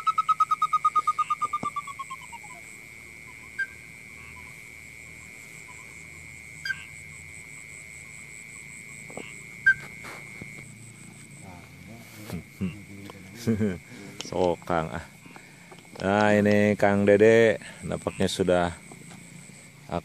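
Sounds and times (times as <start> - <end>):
pulsed whistling bird-call trill: 0.0 - 4.6, 5.2 - 7.3, 9.6 - 10.0.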